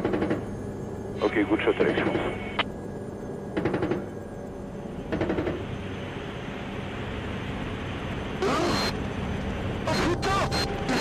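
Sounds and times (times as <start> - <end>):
rotor and intercom hiss: 1.1 - 2.6, 8.3 - 9.0, 9.8 - 11.0.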